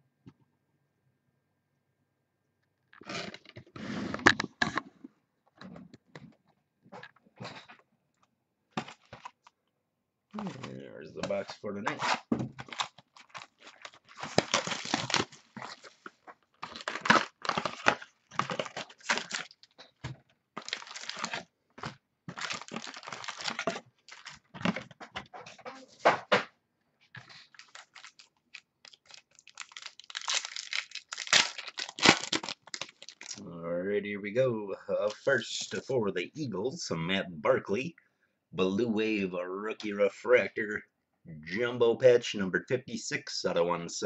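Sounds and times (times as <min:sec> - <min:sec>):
plastic wrapping tearing and crinkling: 0:11.9 - 0:24.9, 0:27.2 - 0:33.4.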